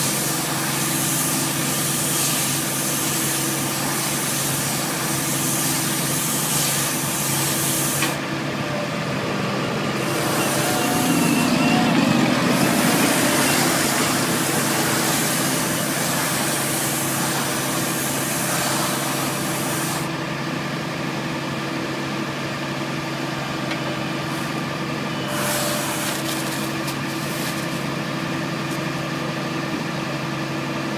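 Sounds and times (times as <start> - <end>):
tractor engine running: 6.9 - 16.2.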